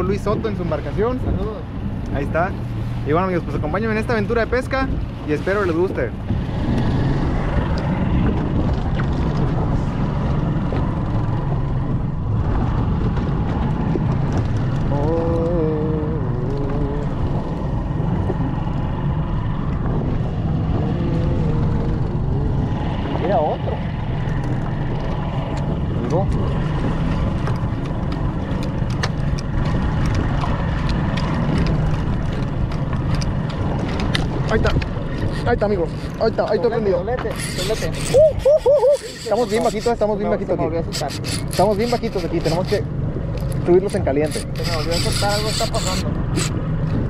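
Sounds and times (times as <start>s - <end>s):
boat engine rumbling: 0.0s - 47.0s
wind noise: 0.0s - 47.0s
sharp ticks: 37.2s - 40.1s, 40.9s - 46.6s.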